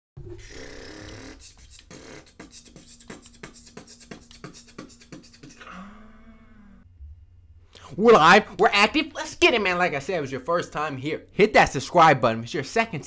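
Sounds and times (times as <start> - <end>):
short vocal snippet: 0.4 - 6.9.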